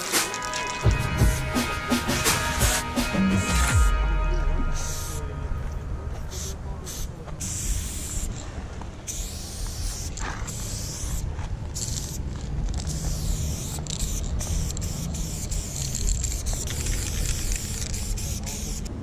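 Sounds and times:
spray paint can hissing: 0.0s - 3.8s, 4.8s - 5.2s, 6.2s - 8.4s, 9.0s - 19.0s
steady low rumble: 0.9s - 9.1s.

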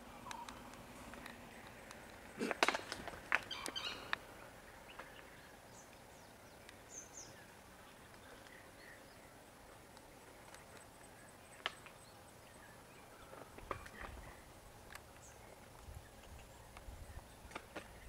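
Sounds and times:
bird chirps: 0.1s - 0.7s, 3.4s - 9.4s.

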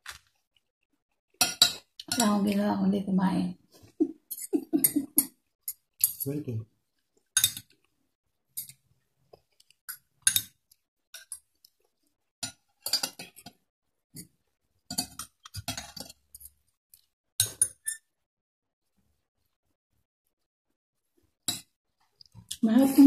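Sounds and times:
cutlery clinking on a plate: 1.4s - 2.3s, 12.4s - 13.6s.

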